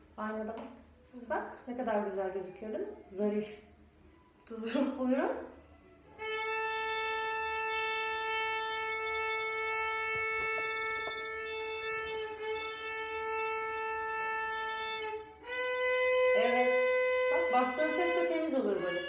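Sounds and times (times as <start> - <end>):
violin long bowed note: 6.1 - 19.0.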